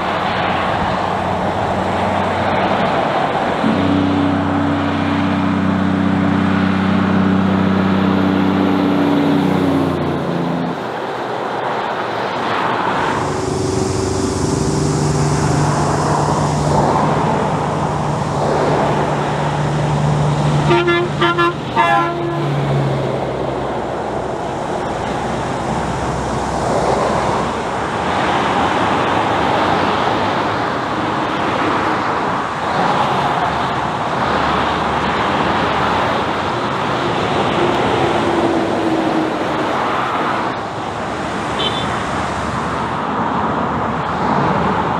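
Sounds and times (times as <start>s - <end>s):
traffic passing on highway: 0.0s - 44.9s
short horn toots: 20.6s - 22.6s, 41.6s - 42.0s.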